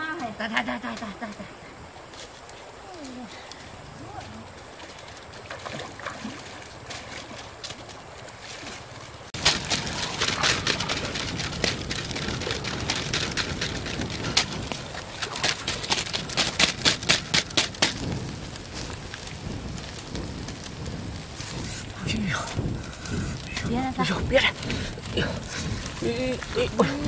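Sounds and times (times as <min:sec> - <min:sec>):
trickling river water: 0:00.0 - 0:27.0
campfire being blown on: 0:09.2 - 0:27.0
whooshing fan strokes: 0:09.4 - 0:27.0.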